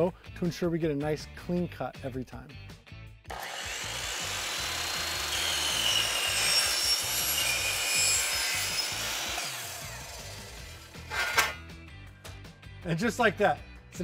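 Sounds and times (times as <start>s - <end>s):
chop saw cutting metal: 3.3s - 11.6s
blade squealing on metal: 5.3s - 9.5s, 11.0s - 11.6s.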